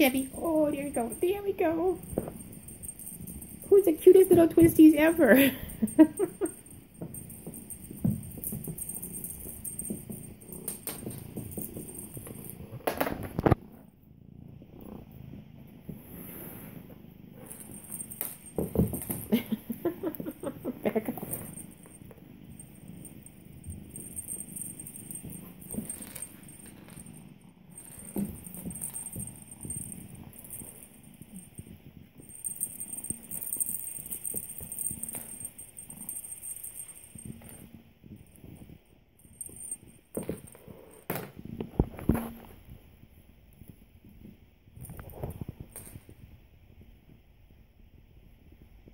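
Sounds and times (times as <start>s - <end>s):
kittens scuffling and tapping: 0.0s - 13.9s, 17.4s - 42.8s, 43.5s - 46.3s.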